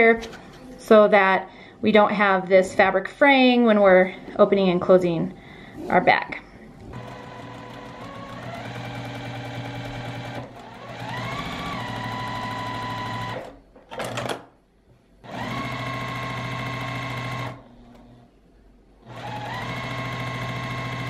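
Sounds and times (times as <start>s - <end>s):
sewing machine motor whine: 6.9s - 13.5s, 15.3s - 18.2s, 19.1s - 21.0s
sewing machine stitching: 6.9s - 14.4s, 15.2s - 18.2s, 19.0s - 21.0s.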